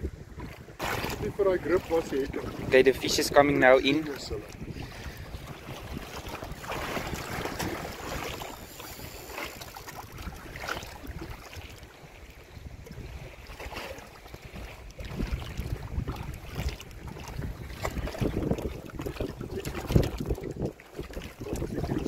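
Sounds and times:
wind buffeting microphone: 0.0s - 22.0s
fish splashing at surface: 0.8s - 2.7s.

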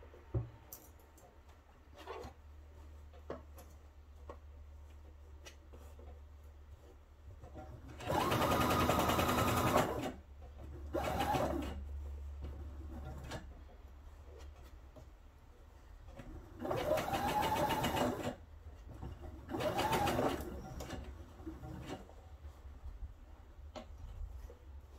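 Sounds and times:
sewing machine stitching: 7.5s - 13.5s, 16.2s - 18.4s, 19.1s - 22.1s.

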